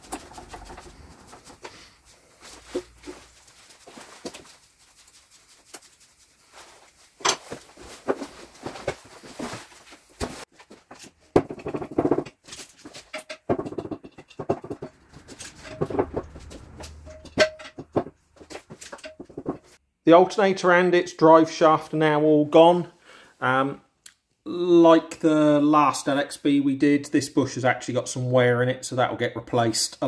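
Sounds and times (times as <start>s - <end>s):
tools clinking on metal: 15.2s - 17.9s.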